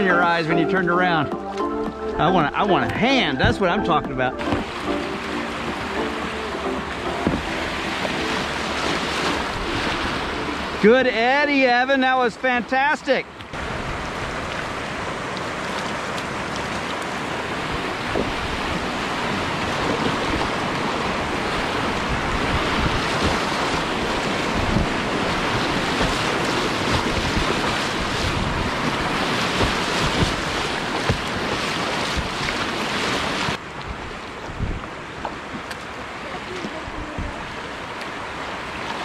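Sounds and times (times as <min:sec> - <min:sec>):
rushing river rapids: 0:00.0 - 0:39.0
sharp water splashes: 0:02.7 - 0:11.4, 0:13.4 - 0:34.0.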